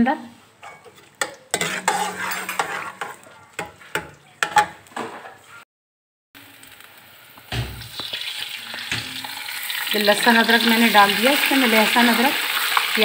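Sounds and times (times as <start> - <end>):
ladle scraping metal pot: 0.6 - 4.8
onions sizzling in oil: 6.4 - 13.0.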